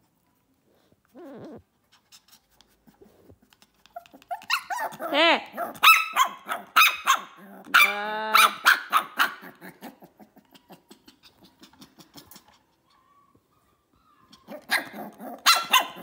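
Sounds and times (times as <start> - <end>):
puppy whining yelp: 0.8 - 2.4, 3.8 - 7.3, 8.5 - 16.0
puppy barking: 4.2 - 9.9, 14.4 - 16.0.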